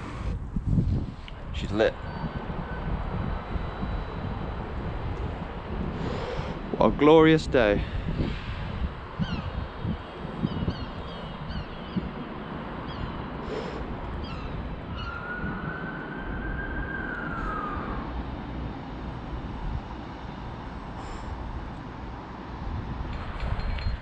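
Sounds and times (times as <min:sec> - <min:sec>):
wind rumbling on microphone: 0:00.0 - 0:24.0
siren wailing: 0:01.9 - 0:05.8, 0:14.2 - 0:19.6.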